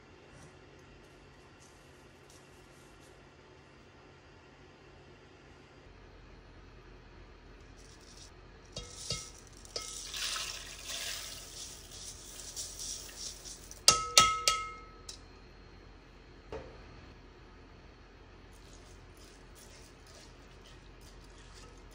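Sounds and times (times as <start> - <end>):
rice sliding into pot: 8.1 - 13.8
metal strainer clanking on pot: 8.8 - 15.2.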